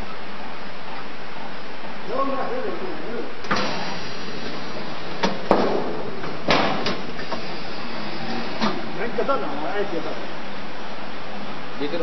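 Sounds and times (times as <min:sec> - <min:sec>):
peeling machine running: 0:03.4 - 0:10.2
sharp knocks: 0:05.2 - 0:07.1.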